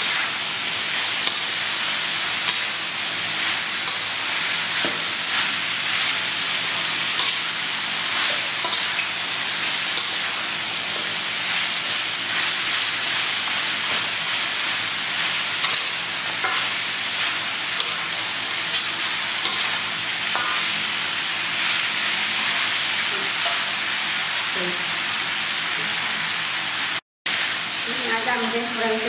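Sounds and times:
food sizzling in a wok: 0.0 - 29.0
spatula scraping a pan: 6.7 - 7.5, 15.6 - 20.7.

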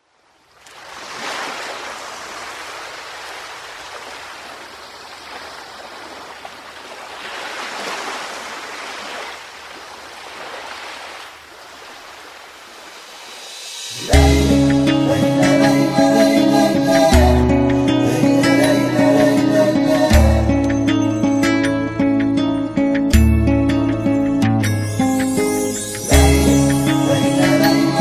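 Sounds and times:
ocean surf washing in: 0.5 - 17.2.

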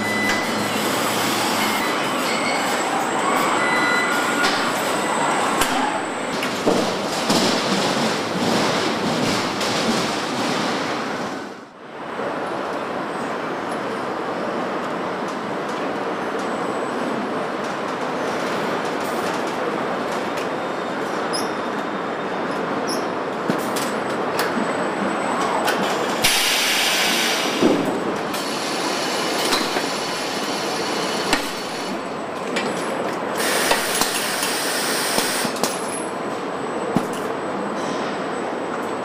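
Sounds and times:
train rolling: 0.0 - 39.0.

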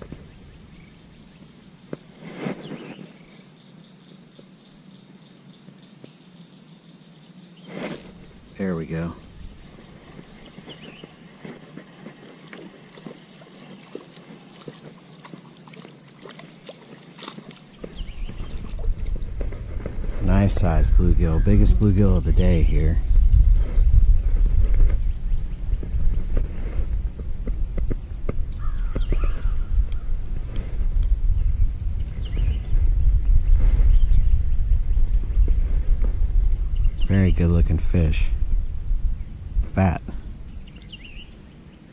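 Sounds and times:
high-pitched whine: 0.0 - 41.9
insect trill: 0.0 - 41.9
wind rumbling on microphone: 8.1 - 11.1, 17.8 - 41.6.

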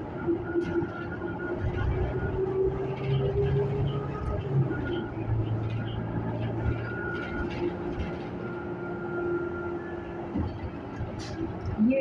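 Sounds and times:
bus drive hum and road noise: 0.0 - 12.0.

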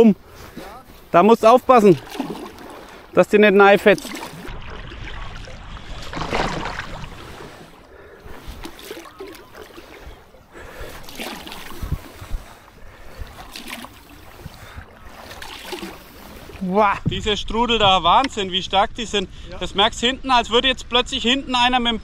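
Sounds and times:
water splashing and rushing: 0.5 - 16.9
wind rumbling on microphone: 4.4 - 22.0.

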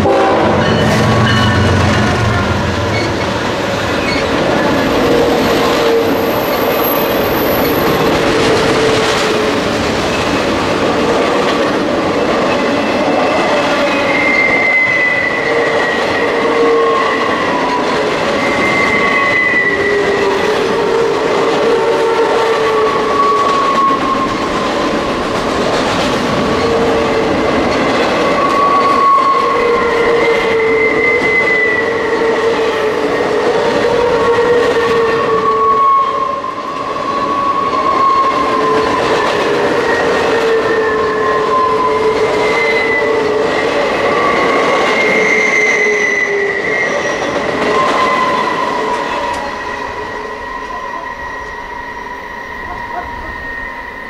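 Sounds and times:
freight train wheel squeal: 0.0 - 54.0
train wheels rumbling on rails: 0.0 - 54.0.

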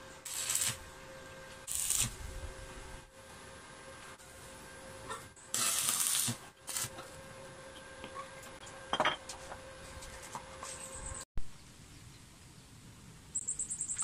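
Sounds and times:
welding arc hiss: 0.0 - 3.1, 5.4 - 7.2.

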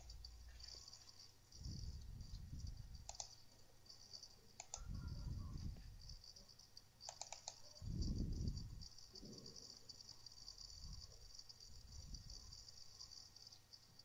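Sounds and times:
soft low rumbles: 0.0 - 3.2, 4.7 - 6.5, 7.7 - 13.0
computer mouse clicks: 2.3 - 5.3, 7.0 - 8.1.

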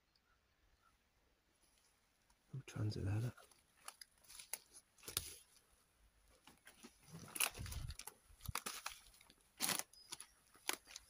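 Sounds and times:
footsteps crunching dry leaves: 3.6 - 5.5, 6.6 - 11.0.

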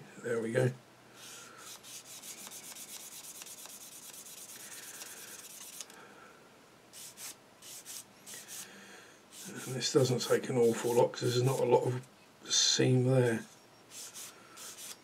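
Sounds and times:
sanding sponge rubbing plastic: 1.7 - 5.8, 7.0 - 8.6, 9.3 - 9.9, 10.6 - 11.7, 13.9 - 15.0.

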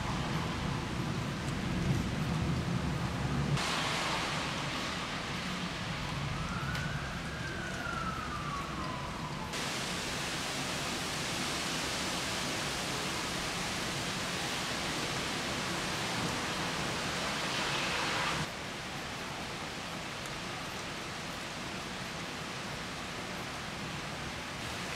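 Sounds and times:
steady rain hissing: 0.0 - 24.9
distant siren wailing: 4.6 - 12.1.

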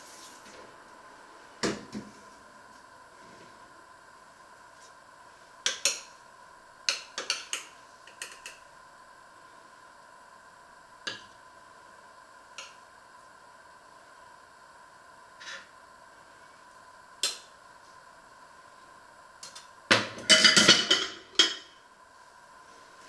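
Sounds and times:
faint hum: 0.0 - 23.0.

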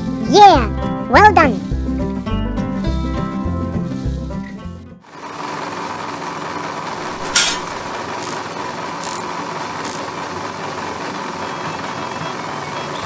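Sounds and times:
small mill motor whirring: 8.1 - 10.1.

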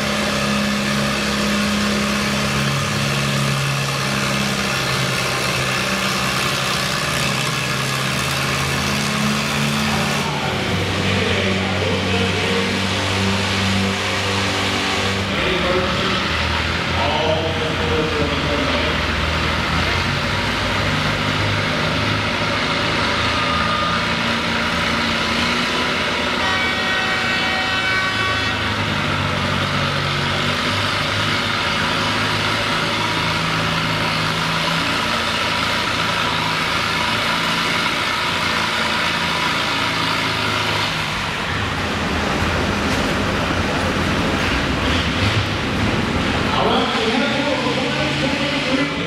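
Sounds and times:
tractor engine running: 0.0 - 49.0
horn-like tone: 23.3 - 24.2, 26.3 - 28.8.

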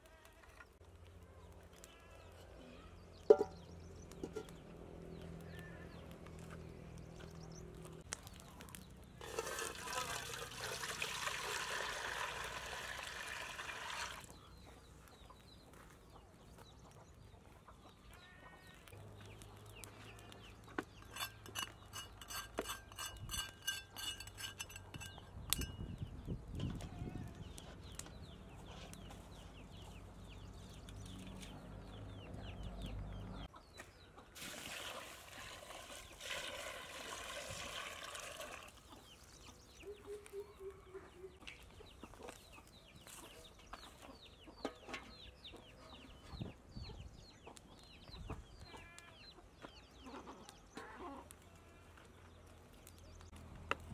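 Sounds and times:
bird chirps: 39.2 - 42.0.

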